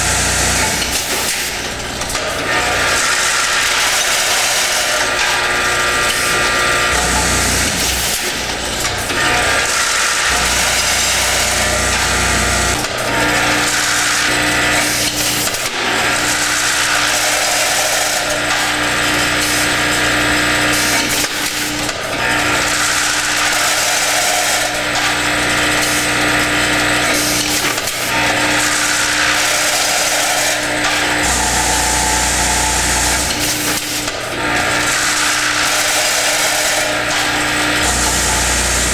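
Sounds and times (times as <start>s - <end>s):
vibrating feed tray humming: 28.4s - 35.7s, 36.3s - 38.9s.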